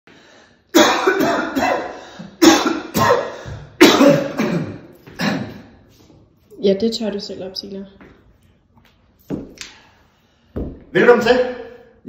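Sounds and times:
person coughing hard: 0:00.7 - 0:05.8.

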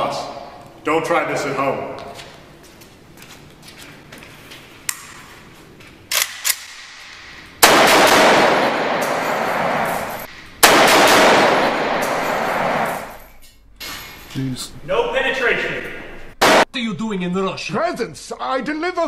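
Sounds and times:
automatic rifle fire: 0:07.6 - 0:13.1, 0:16.4 - 0:16.7.

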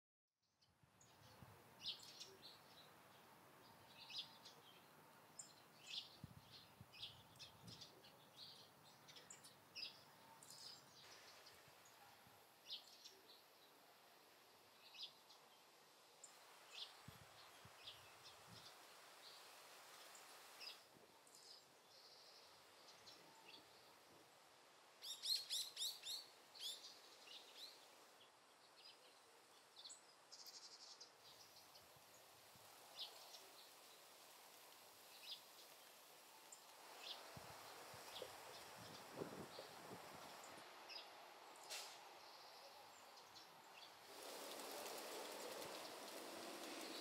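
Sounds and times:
soft background hiss: 0:00.7 - 0:47.0
birds chirping: 0:36.5 - 0:47.0.

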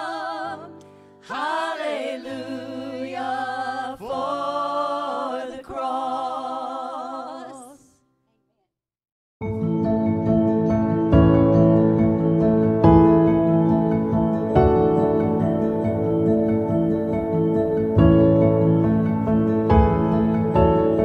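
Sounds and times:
singers with vibrato: 0:00.0 - 0:08.0
instrumental music: 0:09.4 - 0:21.0
low keyboard or bass notes: 0:09.4 - 0:21.0.

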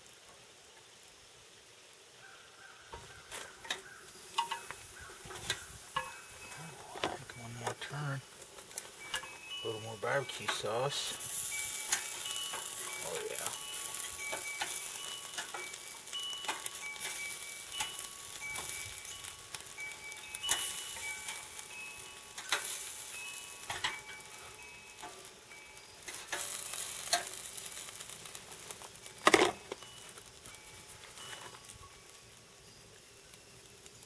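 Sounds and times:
meat sizzling on a grill: 0:00.0 - 0:34.0
metal tongs clicking on grate: 0:03.6 - 0:06.2, 0:08.6 - 0:09.4, 0:10.3 - 0:25.4, 0:26.0 - 0:30.2.

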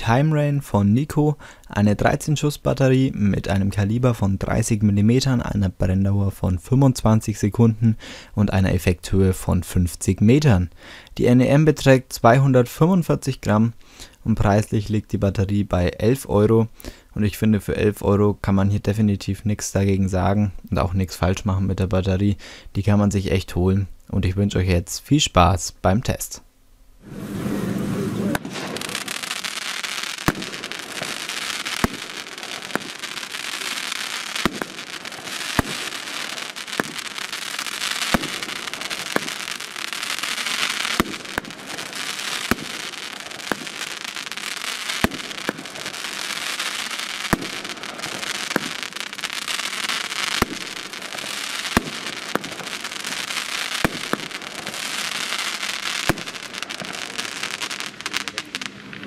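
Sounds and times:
fireworks crackle: 0:27.0 - 0:59.0
fireworks shots: 0:27.0 - 0:59.0.

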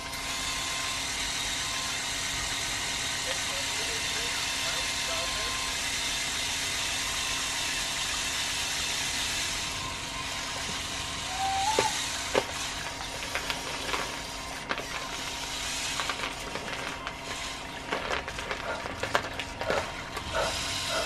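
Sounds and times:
electric motors running: 0:00.0 - 0:21.0
bucket scraping through dried beans: 0:10.6 - 0:21.0.

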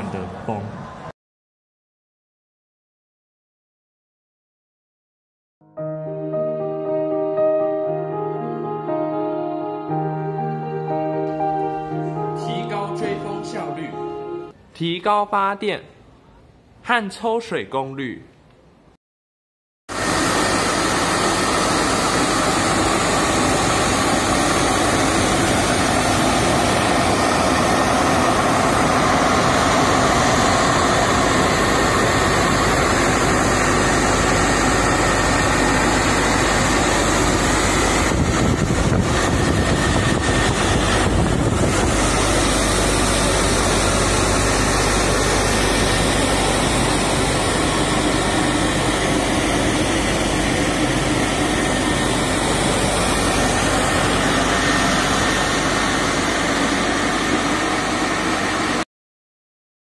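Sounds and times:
blower rush of air: 0:19.9 - 0:58.8.

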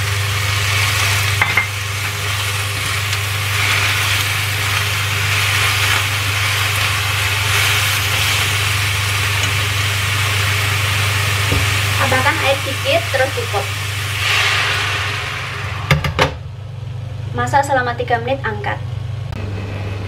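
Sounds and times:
greens sizzling in frying pan: 0:00.0 - 0:15.6
steady low hum: 0:00.0 - 0:20.0.

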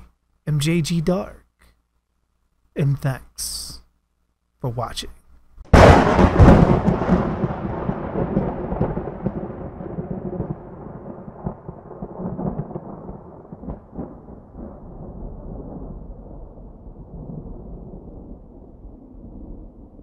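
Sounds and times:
rolling thunder rumble: 0:05.7 - 0:20.0
thunderclap: 0:05.7 - 0:20.0.

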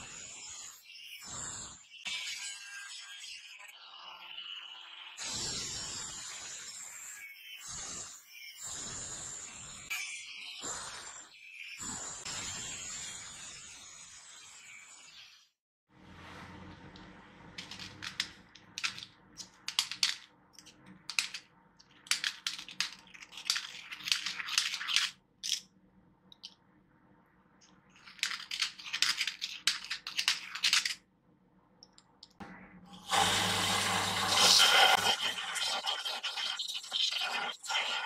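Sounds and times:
electric belt grinder running: 0:33.1 - 0:35.0.

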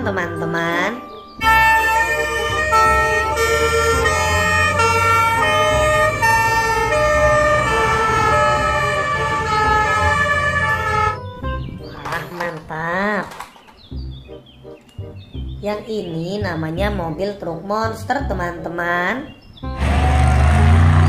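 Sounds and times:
two-tone fire engine sirens: 0:01.4 - 0:11.3
low engine rumble: 0:01.4 - 0:11.8.

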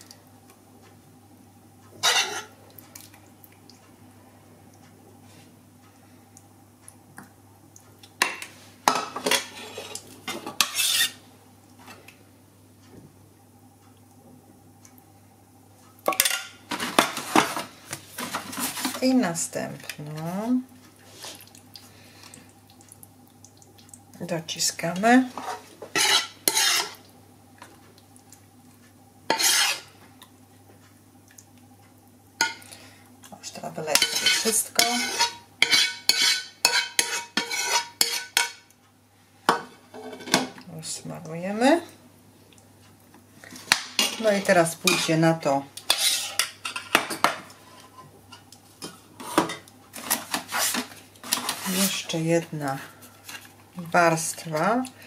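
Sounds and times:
utensil scraping cookware: 0:02.0 - 0:02.5, 0:09.2 - 0:11.2, 0:25.4 - 0:27.0, 0:29.3 - 0:29.9, 0:33.9 - 0:38.5, 0:45.9 - 0:48.1.

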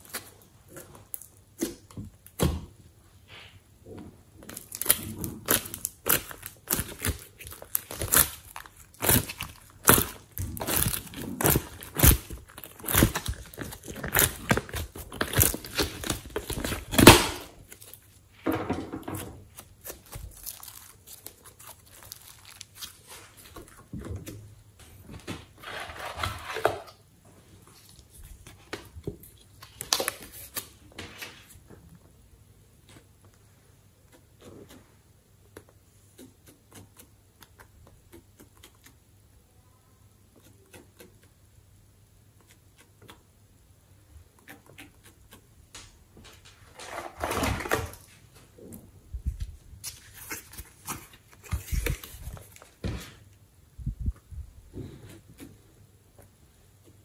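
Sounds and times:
slime squishing: 0:04.3 - 0:18.4, 0:19.1 - 0:24.7.

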